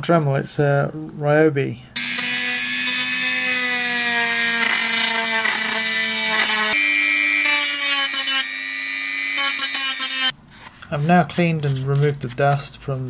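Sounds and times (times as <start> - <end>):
rotary tool motor whining: 2.0 - 10.3.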